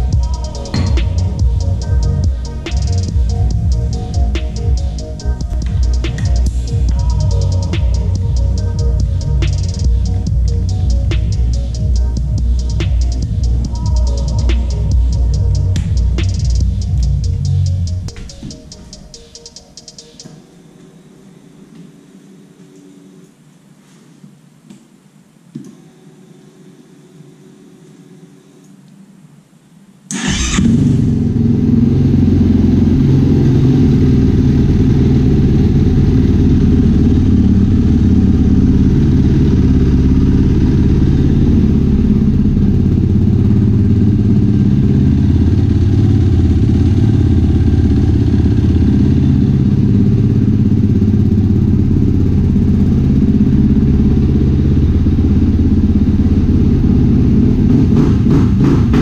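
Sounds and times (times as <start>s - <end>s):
quad engine idling: 0.0s - 18.1s, 30.2s - 59.0s.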